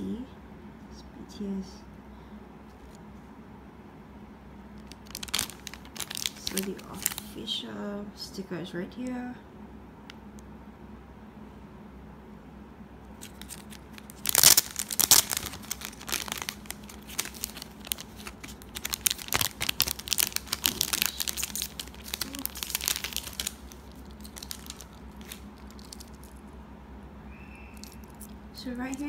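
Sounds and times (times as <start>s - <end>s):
plastic packaging crinkling: 4.8s - 7.5s, 13.2s - 26.5s, 27.7s - 29.0s.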